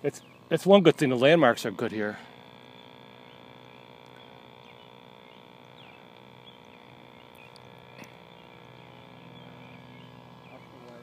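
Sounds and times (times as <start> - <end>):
faint steady hum of held tones: 0.0 - 11.0
bird chirps: 2.7 - 10.8.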